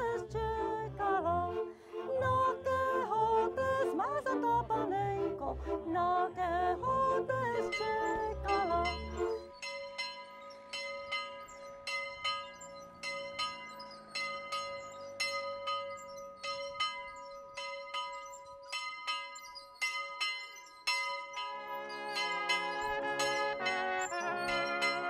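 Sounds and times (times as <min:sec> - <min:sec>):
chapel bell ringing: 0:07.6 - 0:25.0
brass band music: 0:21.7 - 0:25.0.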